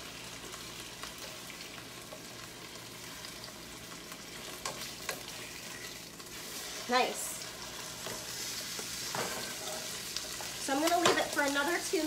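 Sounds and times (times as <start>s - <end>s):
chicken sizzling in skillet: 0.0s - 12.0s.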